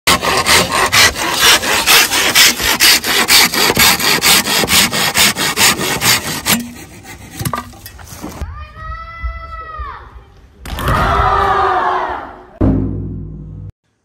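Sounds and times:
pull saw rasping through bamboo: 0:00.1 - 0:08.4.

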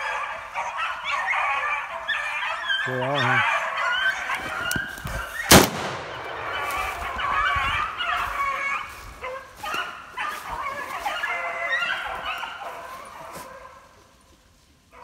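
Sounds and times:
dogs baying: 0:00.0 - 0:05.5, 0:06.2 - 0:14.0
sharp loud crack: 0:05.5 - 0:06.6.

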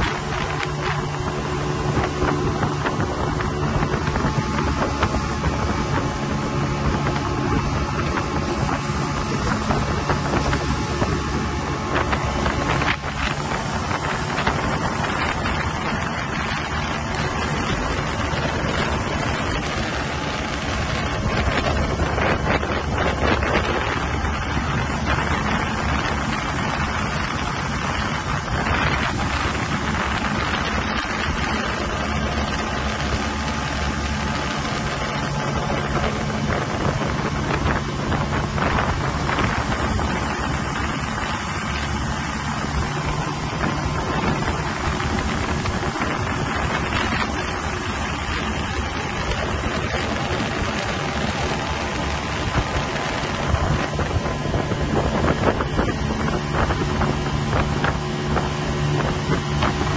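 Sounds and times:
boat engine humming: 0:00.0 - 0:59.9
wind buffeting microphone: 0:00.0 - 0:59.9.

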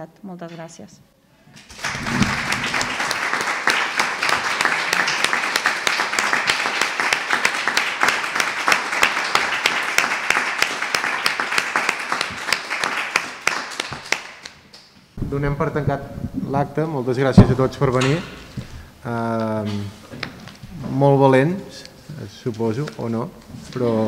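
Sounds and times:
audience clapping: 0:01.6 - 0:15.7.

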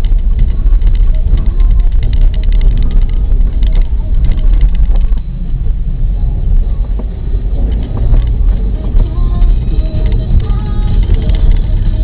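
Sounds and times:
crackling knocks: 0:00.0 - 0:05.3
car tyres and engine rumble: 0:00.0 - 0:12.0.

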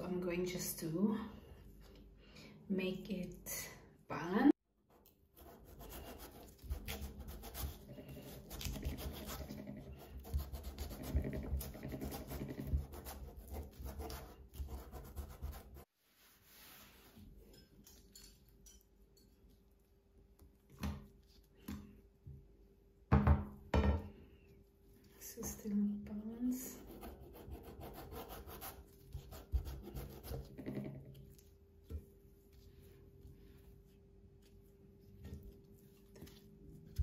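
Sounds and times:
knife cutting watermelon: 0:05.0 - 0:15.1
knock: 0:23.1 - 0:24.0
faint handling sounds: 0:31.0 - 0:37.0.

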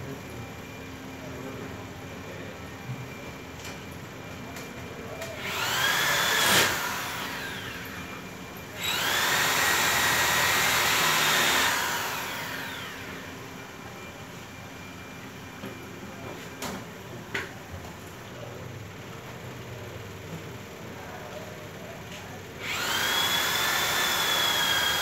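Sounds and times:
electric power tool motor whining: 0:05.4 - 0:08.1, 0:08.8 - 0:13.3, 0:22.6 - 0:25.0.

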